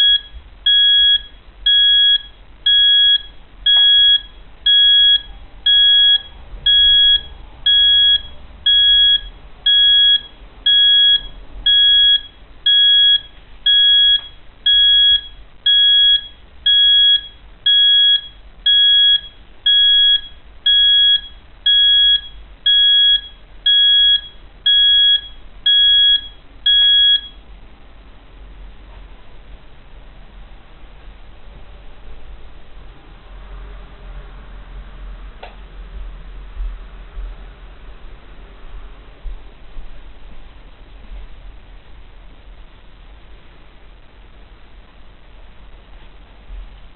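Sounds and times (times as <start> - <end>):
alarm clock beeping: 0.0 - 27.4.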